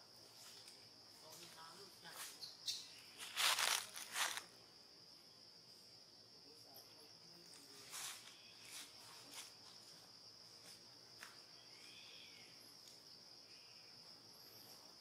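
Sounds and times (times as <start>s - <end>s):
insects droning: 0.0s - 15.0s
faint chirp: 2.3s - 3.4s, 11.6s - 12.8s.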